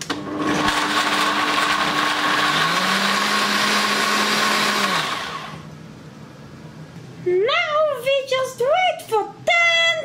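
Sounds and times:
blender motor humming: 0.0s - 5.7s.

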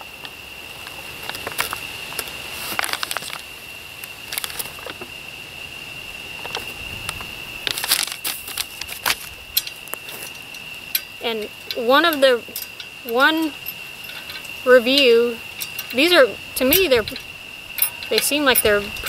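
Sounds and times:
paper rustling and crinkling: 2.6s - 3.4s, 7.7s - 9.4s.

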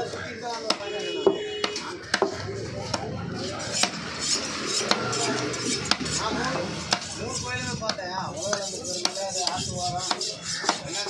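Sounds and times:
knife chopping on wooden block: 0.7s - 6.2s, 6.9s - 7.2s, 7.9s - 10.9s.

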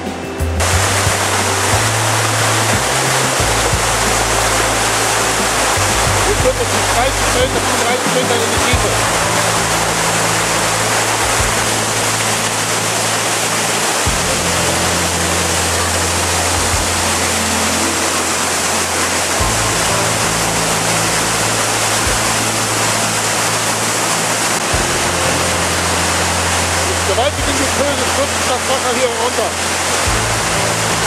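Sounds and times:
low sustained music notes: 0.0s - 31.0s
waterfall roaring: 0.0s - 31.0s.

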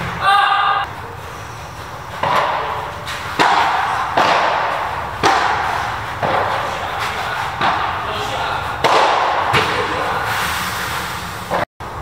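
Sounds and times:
rackets hitting ball: 1.8s - 10.3s
ball bouncing off court: 2.1s - 10.0s.

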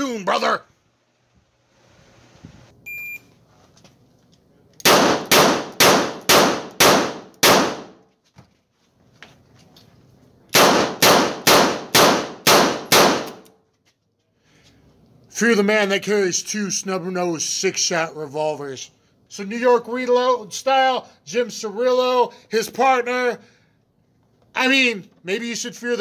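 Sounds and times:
short electronic beep: 2.8s - 3.3s
revolver shots ringing indoors: 4.8s - 8.0s, 10.5s - 13.6s.

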